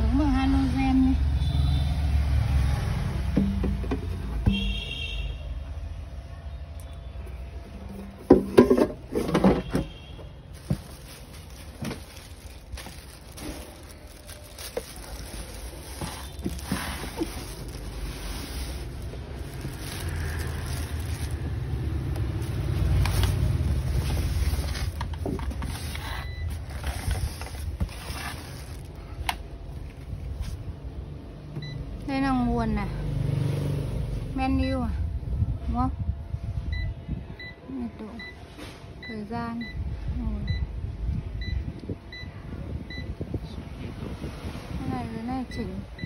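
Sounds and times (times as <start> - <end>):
plastic knocks and rattles: 8.2 - 10.0, 24.7 - 25.8
low rumble: 10.6 - 31.8.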